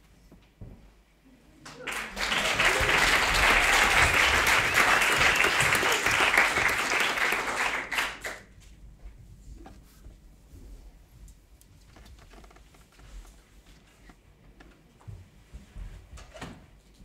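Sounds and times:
audience applauding: 1.6 - 8.5.

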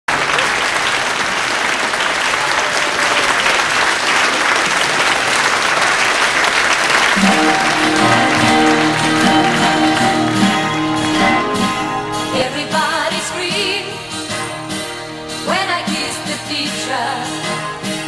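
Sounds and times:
audience applauding: 0.1 - 13.3
acoustic guitar playing: 7.2 - 18.0.

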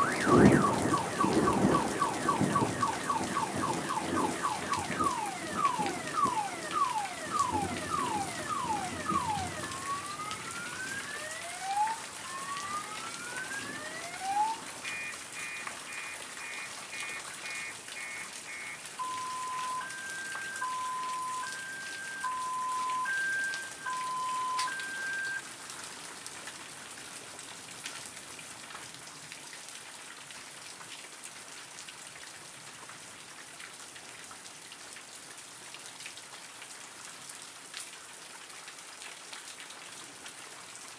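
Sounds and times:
electronic alarm siren: 0.0 - 25.4
steady rain falling: 0.0 - 40.9.

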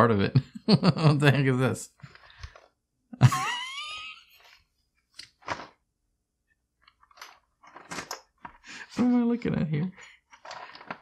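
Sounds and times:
paper booklet rustling: 7.0 - 9.2, 9.9 - 11.0.

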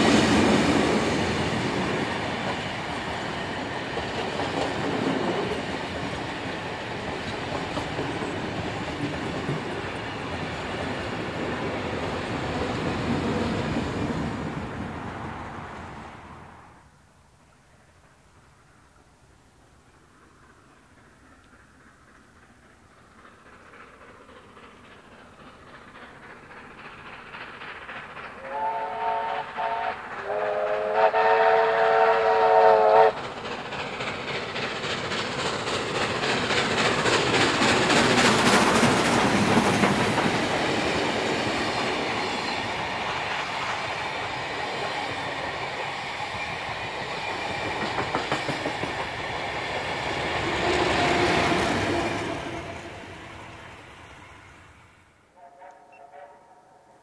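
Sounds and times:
train wheels clattering on rails: 0.0 - 15.4, 20.0 - 54.7
steam locomotive exhaust: 18.0 - 57.0
steam whistle blasts: 28.4 - 33.2, 55.3 - 57.0.

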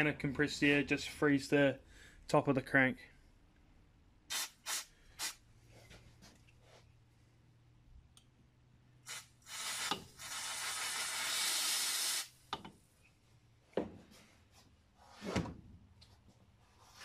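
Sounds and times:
compressed air spray hiss: 4.3 - 5.4, 9.0 - 12.3.

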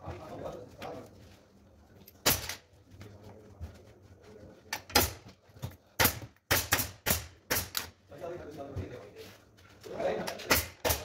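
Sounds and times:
pneumatic staple gun firing: 6.0 - 7.9.

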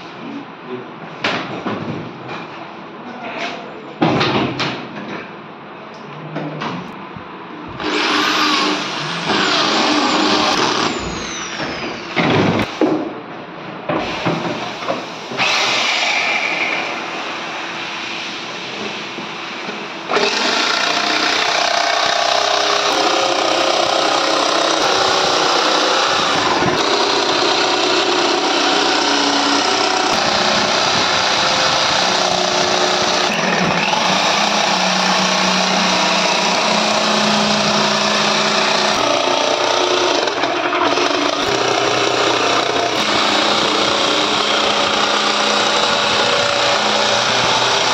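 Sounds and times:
jigsaw cutting plywood: 7.8 - 12.3, 20.1 - 47.9.

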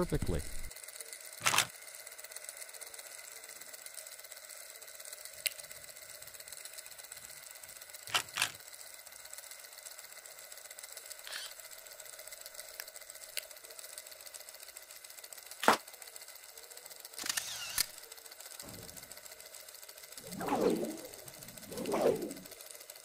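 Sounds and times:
sharp mechanical clicks: 1.4 - 1.8, 8.1 - 8.6, 11.2 - 11.6, 14.7 - 15.9, 17.2 - 18.0
faint hiss: 20.2 - 22.6.

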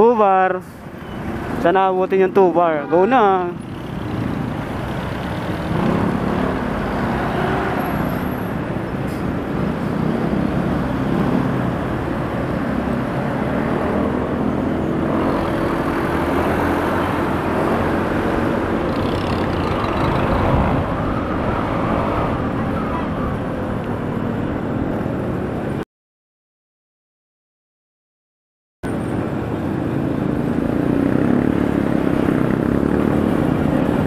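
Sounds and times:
road rumble: 0.0 - 25.8, 28.8 - 34.0
surrounding traffic: 0.0 - 25.9, 28.8 - 34.0
wind on microphone: 18.8 - 25.3.

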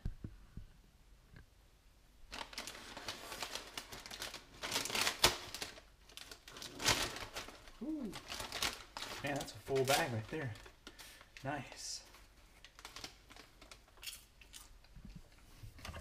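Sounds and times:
paper bag crinkling: 2.3 - 14.3.

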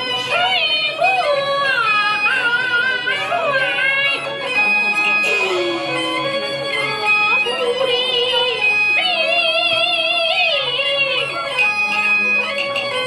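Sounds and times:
traditional instrumental accompaniment: 0.0 - 13.0
high voice singing with vibrato: 5.0 - 10.0.

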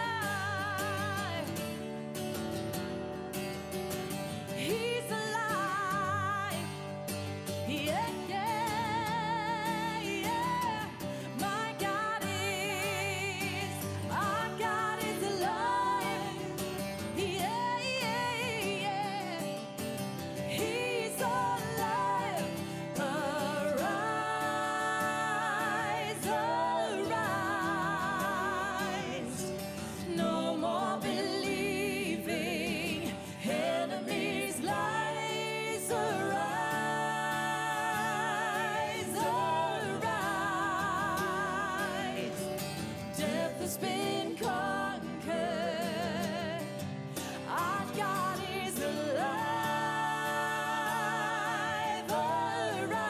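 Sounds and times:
woman singing worship song: 0.0 - 1.8, 4.3 - 53.0.

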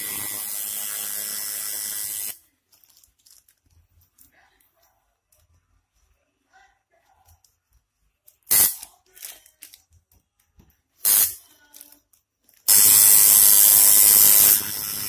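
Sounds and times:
tattoo machine buzzing: 0.0 - 2.4, 11.1 - 11.4, 12.7 - 15.0
short hissing bursts: 8.5 - 8.8.

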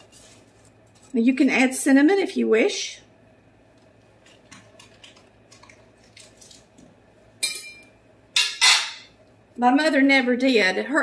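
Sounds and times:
kitchen utensils clinking: 7.4 - 9.1.

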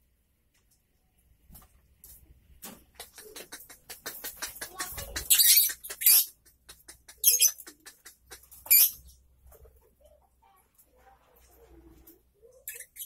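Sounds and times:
lovebirds chattering: 3.0 - 9.2, 12.5 - 13.0.

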